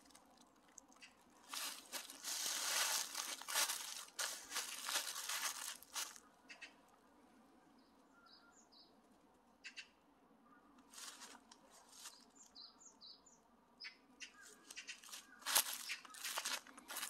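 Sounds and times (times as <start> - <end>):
footsteps crunching dry leaves: 1.4 - 6.2, 10.9 - 12.2, 14.7 - 17.0
bird chirping: 6.4 - 6.8, 7.7 - 9.0, 12.0 - 17.0.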